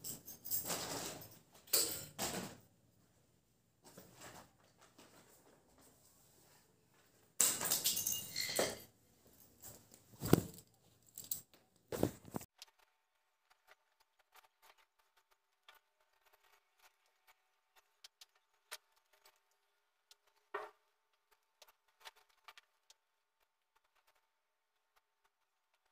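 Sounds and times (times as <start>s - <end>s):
clothes and phone rustling: 3.8s - 7.4s, 9.0s - 12.5s.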